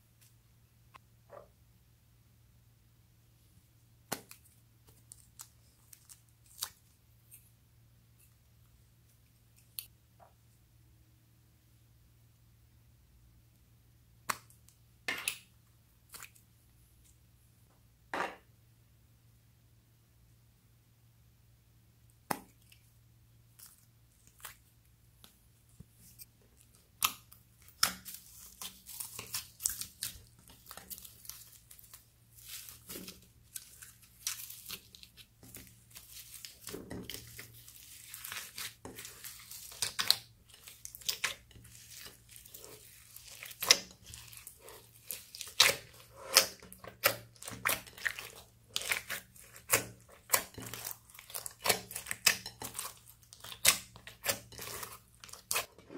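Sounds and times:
slime crackling and popping: 26.6 - 55.7.

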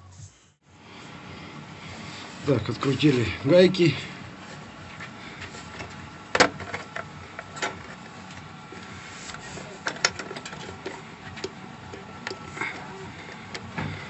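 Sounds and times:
metal parts clicking and knocking: 9.8 - 12.5.

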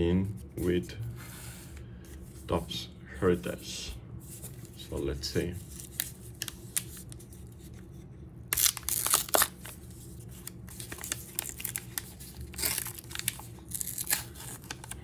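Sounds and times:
card pack wrapper tearing: 8.5 - 15.0.

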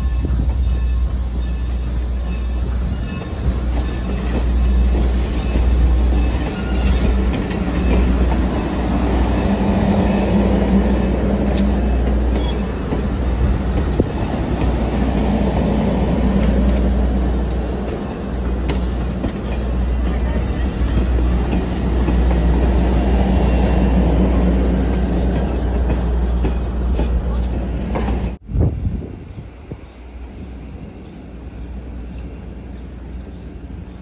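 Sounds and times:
steel wheels rumbling on rails: 0.0 - 34.0.

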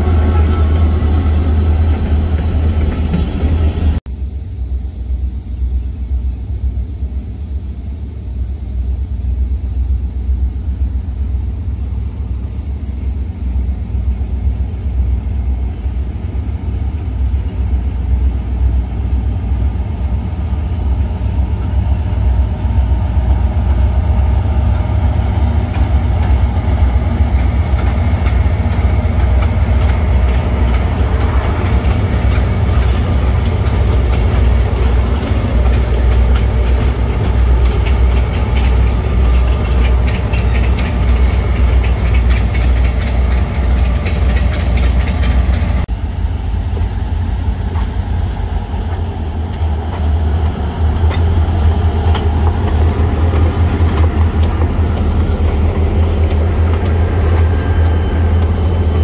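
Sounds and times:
train wheels on rails: 0.0 - 4.0, 9.3 - 59.0
diesel locomotive engine rumble: 0.0 - 59.0
high wheel squeal: 20.7 - 59.0.

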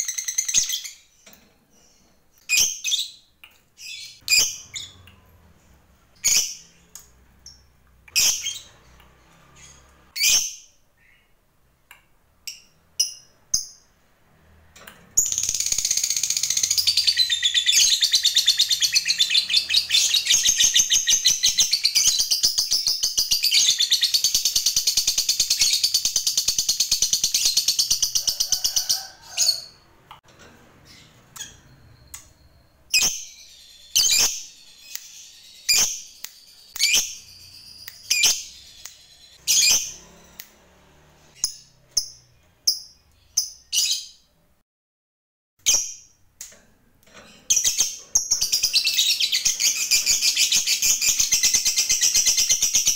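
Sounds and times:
lovebird chirps: 0.0 - 5.3, 6.1 - 9.0, 15.2 - 28.7, 30.8 - 40.5.

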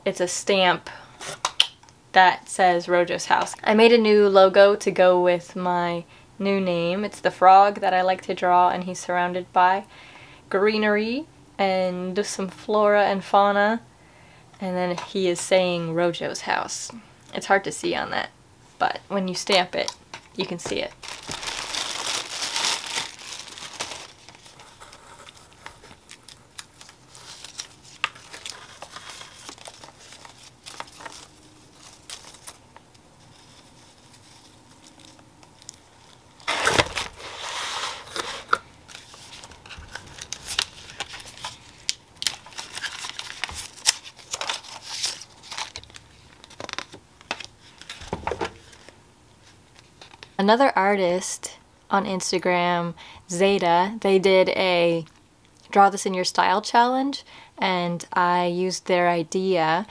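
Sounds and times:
plastic bags crinkling: 20.6 - 37.3, 38.9 - 48.0.

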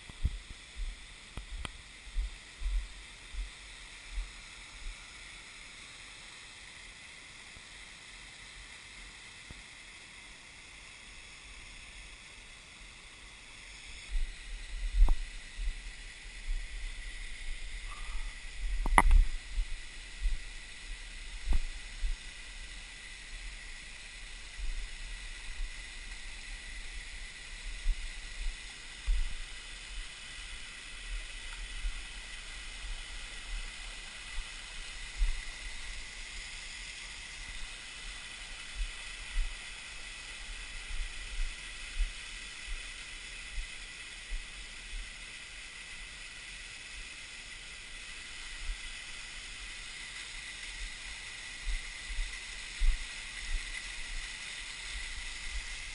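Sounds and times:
waterfall splashing on rocks: 18.4 - 55.9.

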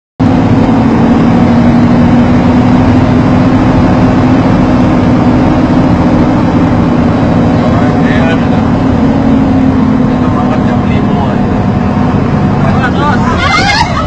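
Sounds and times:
vehicle engine and road noise: 0.2 - 14.0.

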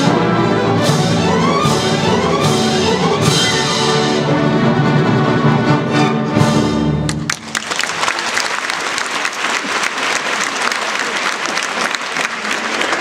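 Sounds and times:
audience applauding: 7.1 - 13.0.

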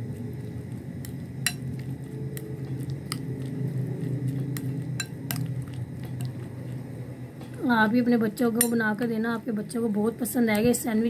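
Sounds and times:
steady low hum: 0.0 - 11.0
spoon stirring in glass bowl: 0.1 - 6.8.

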